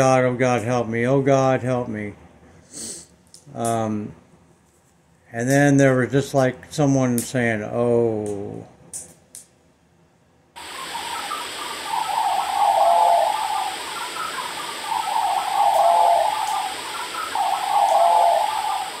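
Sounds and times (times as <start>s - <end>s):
steady rushing hiss: 10.6s - 19.0s.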